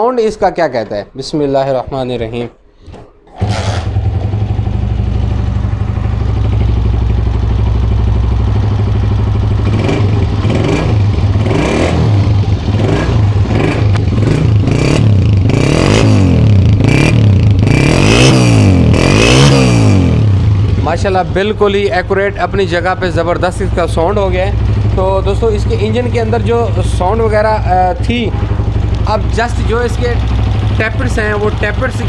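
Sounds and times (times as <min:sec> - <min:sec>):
motorcycle engine kick-started: 0:02.8 - 0:05.6
motorcycle engine revving: 0:03.3 - 0:32.0.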